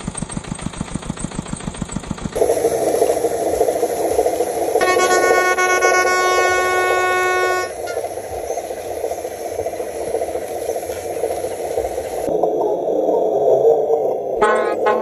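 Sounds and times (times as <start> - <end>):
toy truck horn: 4.8 - 7.9, 14.4 - 15.0.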